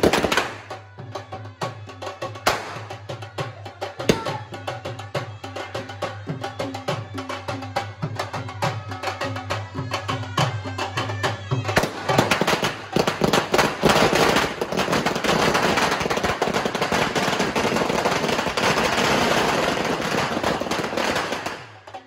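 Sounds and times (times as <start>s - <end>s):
firecrackers crackling: 0.0s - 1.0s, 2.3s - 3.4s, 4.0s - 4.6s, 11.7s - 22.0s.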